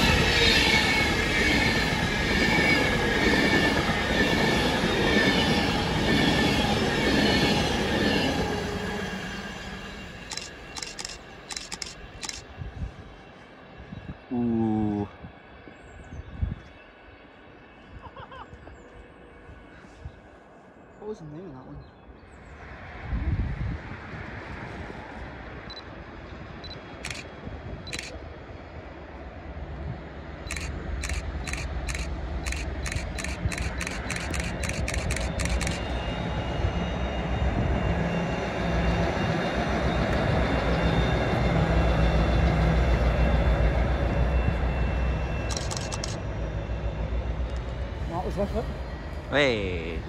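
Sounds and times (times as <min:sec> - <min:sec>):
train passing with low rumble: 0:00.0 - 0:50.0
camera shutter clicks: 0:10.3 - 0:12.4, 0:27.0 - 0:27.3, 0:30.5 - 0:35.8, 0:45.5 - 0:46.2.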